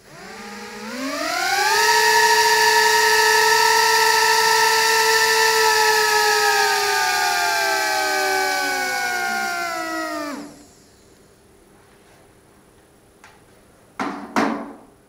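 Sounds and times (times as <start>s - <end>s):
drone motors whining: 0.0s - 11.2s.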